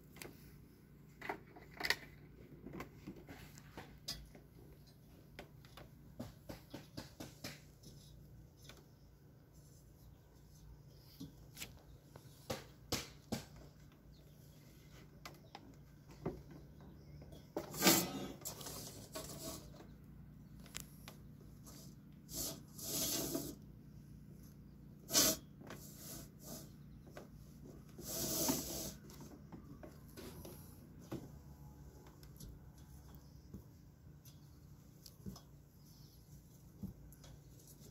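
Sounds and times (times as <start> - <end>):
wooden strip scraping in metal rail: 17.6 - 19.9, 21.7 - 23.6.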